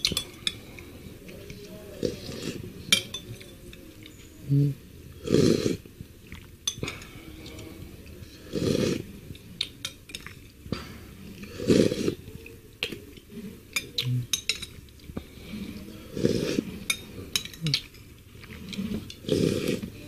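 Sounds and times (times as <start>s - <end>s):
spoon scraping a bowl: 13.7s - 20.0s.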